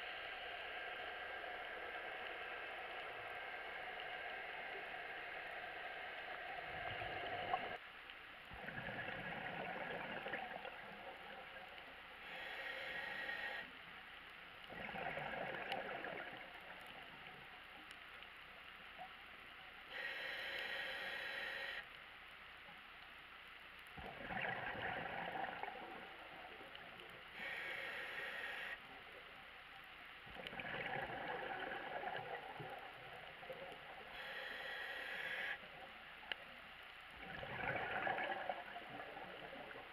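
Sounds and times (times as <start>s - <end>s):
gurgling exhaled bubbles: 8.6s - 10.8s, 14.7s - 16.5s, 24.0s - 26.2s, 30.4s - 34.0s, 37.2s - 39.9s
regulator breath hiss: 12.2s - 13.8s, 19.9s - 21.9s, 27.3s - 28.8s, 34.1s - 35.6s.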